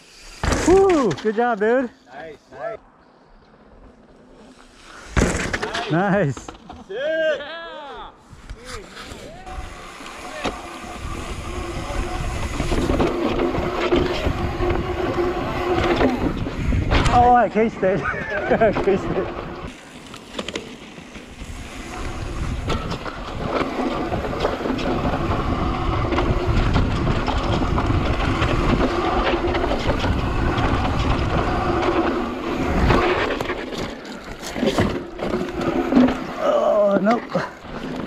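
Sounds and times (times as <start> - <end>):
tyres rolling on dirt: 0.3 - 2.0, 8.8 - 38.0
bike rattling over bumps: 3.8 - 6.9, 9.2 - 38.0
wind on microphone: 10.9 - 17.2, 21.4 - 33.2.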